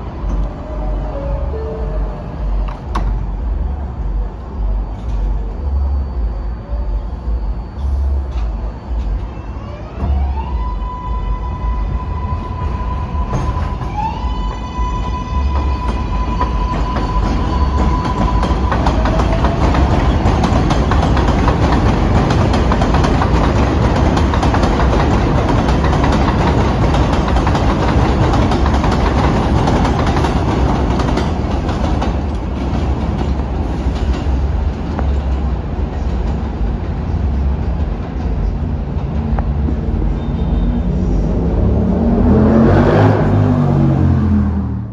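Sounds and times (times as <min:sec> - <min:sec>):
steady high tone from train: 0:00.0 - 0:44.9
train wheels clattering over rails: 0:12.3 - 0:40.2.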